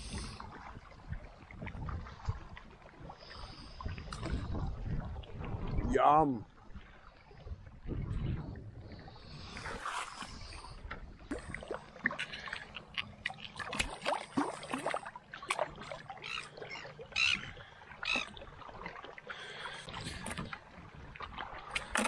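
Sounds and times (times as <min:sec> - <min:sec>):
seawater splashing and sloshing: 0:00.0 - 0:22.0.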